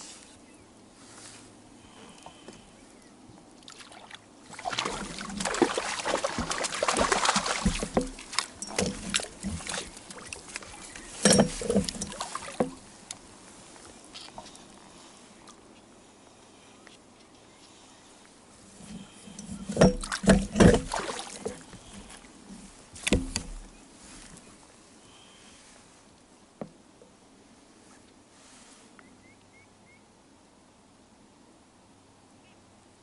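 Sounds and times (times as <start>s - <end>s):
water splashing and sloshing: 3.4s - 15.7s, 18.5s - 24.7s.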